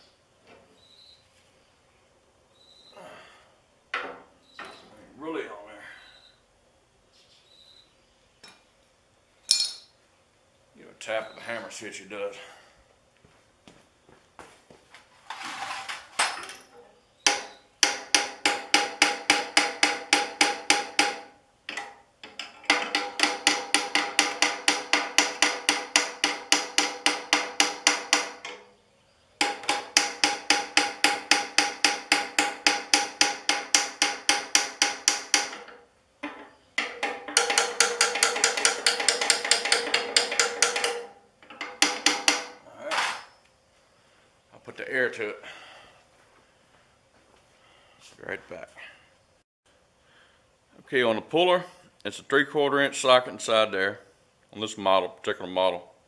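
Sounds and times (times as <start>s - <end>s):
hammer striking metal: 17.2s - 21.9s, 22.6s - 28.7s, 29.4s - 43.3s.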